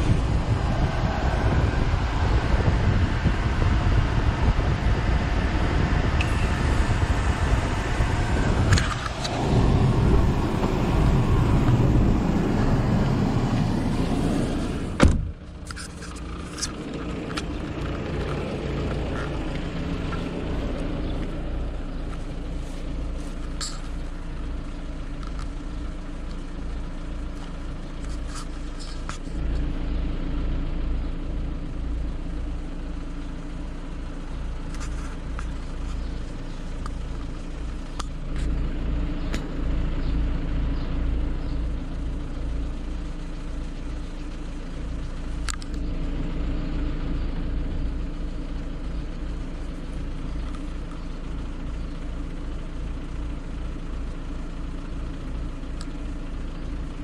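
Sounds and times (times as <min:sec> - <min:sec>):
air conditioning blower: 0:00.0 - 0:15.0
car engine running: 0:00.0 - 0:57.0
car door shutting: 0:13.5 - 0:15.4.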